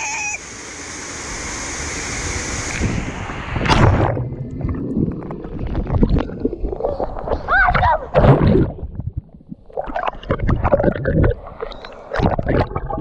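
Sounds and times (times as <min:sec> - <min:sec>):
rushing water hiss: 0:00.0 - 0:03.7
loud splash: 0:01.0 - 0:04.8
underwater bubbling: 0:03.6 - 0:13.0.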